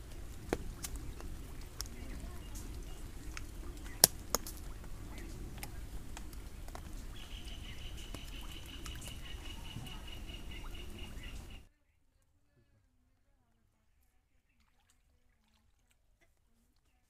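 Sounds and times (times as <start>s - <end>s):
low steady rumble: 0.0s - 11.6s.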